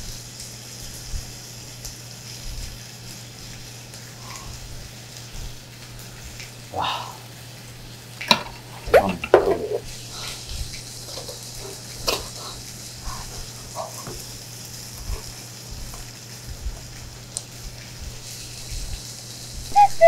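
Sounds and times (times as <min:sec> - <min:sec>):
meat sizzling on a grill: 0:00.0 - 0:19.9
person's voice: 0:08.8 - 0:09.9, 0:19.7 - 0:20.0.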